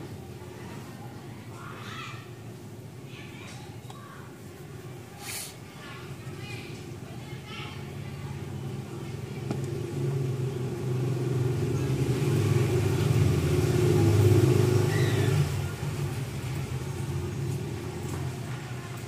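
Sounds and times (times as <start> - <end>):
vehicle engine running: 7.8 - 19.0.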